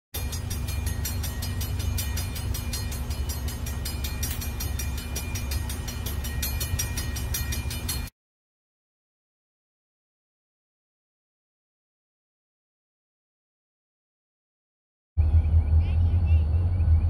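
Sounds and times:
diesel locomotive engines droning: 0.2s - 8.1s, 15.2s - 17.0s
rapid high ticking: 0.2s - 8.1s.

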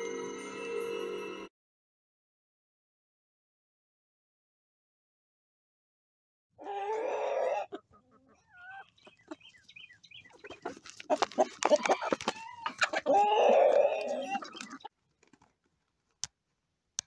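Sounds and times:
chickens clucking: 6.6s - 14.9s
chickens squawking: 6.6s - 14.9s
beaks pecking grain in a pan: 8.8s - 13.0s, 13.8s - 14.9s.

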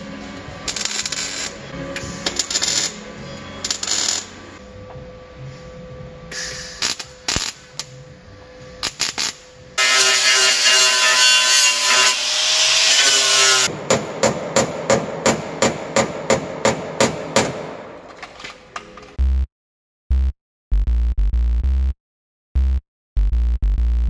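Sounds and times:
welding crackling: 6.8s - 7.9s, 8.8s - 9.4s
angle grinder grinding metal: 8.9s - 13.7s
hammer striking metal: 9.8s - 18.2s.

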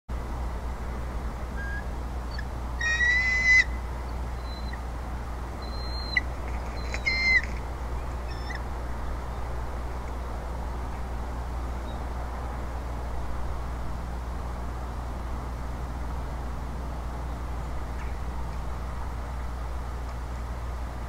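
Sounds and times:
low hum and hiss: 0.1s - 21.0s
eagle whistled calls: 1.6s - 4.8s, 5.6s - 7.5s, 8.3s - 8.6s.

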